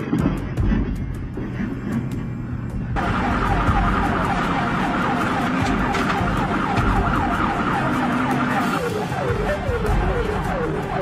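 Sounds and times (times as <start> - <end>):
road and engine rumble: 0.0 - 11.0
emergency siren yelping: 3.0 - 11.0.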